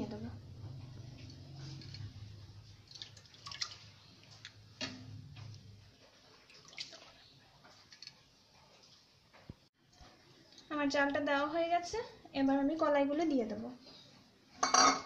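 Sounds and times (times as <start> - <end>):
water dripping: 1.0 - 8.2.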